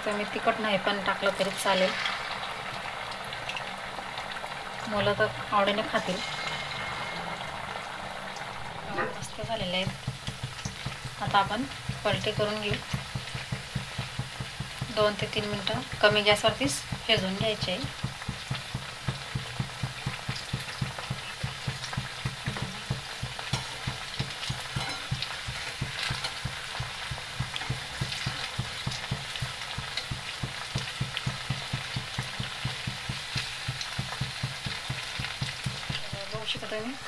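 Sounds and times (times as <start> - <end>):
deep-frying sizzling and crackling: 0.0 - 37.0
low pulsing: 4.9 - 10.1.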